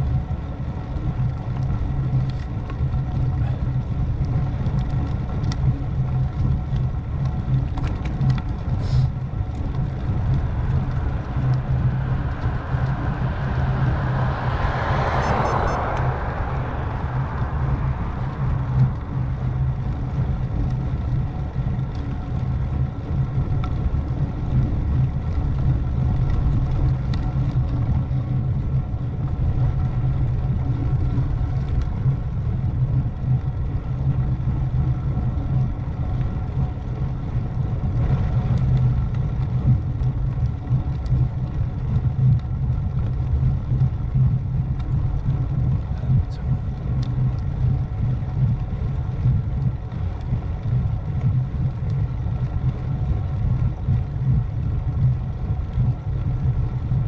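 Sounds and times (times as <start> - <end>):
bicycle road rumble: 0.0 - 57.0
wind buffeting the microphone: 0.0 - 57.0
faint steady tones: 3.7 - 32.1.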